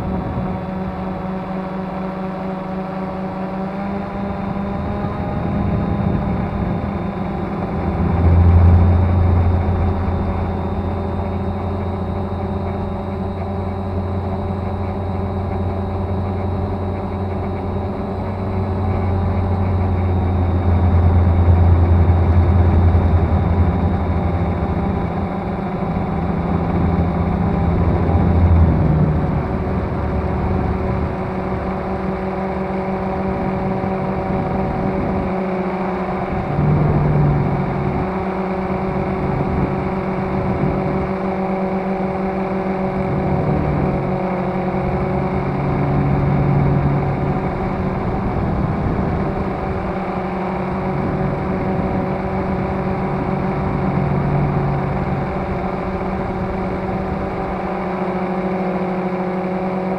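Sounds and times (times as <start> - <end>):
drone propellers humming: 0.0 - 59.9.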